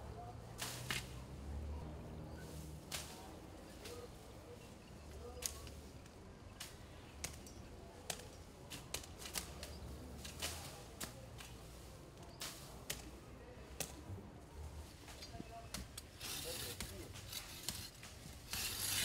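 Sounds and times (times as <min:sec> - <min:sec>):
machete swishing through grass: 0:00.4 - 0:01.3, 0:02.4 - 0:04.6, 0:08.0 - 0:14.0, 0:14.9 - 0:19.0.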